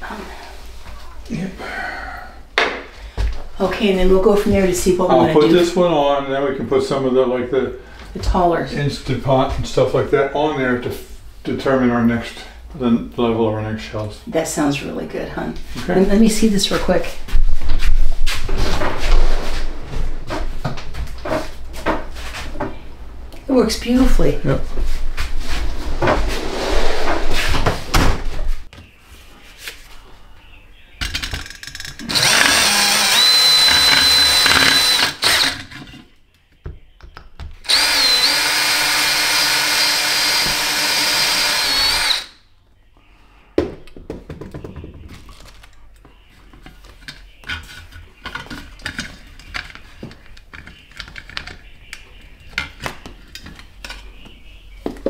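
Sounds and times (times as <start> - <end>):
cordless drill whining: 32.1 - 35.6, 37.7 - 42.3.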